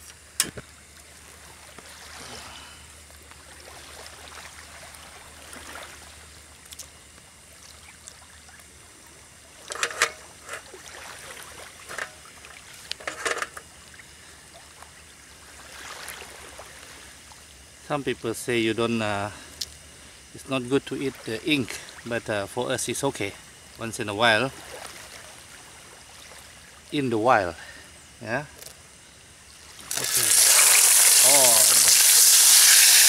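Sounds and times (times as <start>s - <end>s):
hot oil sizzling and bubbling: 29.7s - 33.0s.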